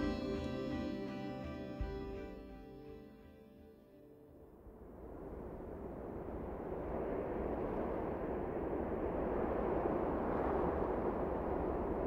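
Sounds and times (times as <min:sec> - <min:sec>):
wind rushing: 0:04.7 - 0:12.0.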